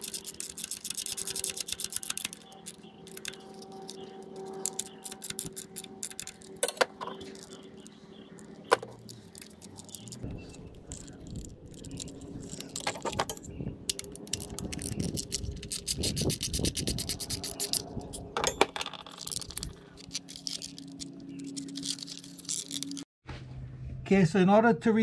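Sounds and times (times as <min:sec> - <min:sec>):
ratchet clicking: 0:00.0 - 0:06.5, 0:13.9 - 0:18.2
scraping and clicks of plastic parts: 0:00.0 - 0:17.8, 0:18.6 - 0:23.1.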